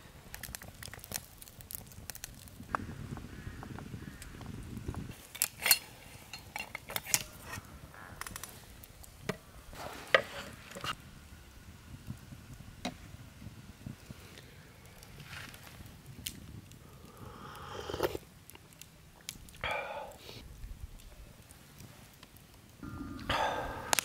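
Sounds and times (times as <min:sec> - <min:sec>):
wood fire crackling: 0:00.0 - 0:24.0
metal tongs clinking on fire pit: 0:05.2 - 0:08.5
low rumble: 0:22.8 - 0:24.0.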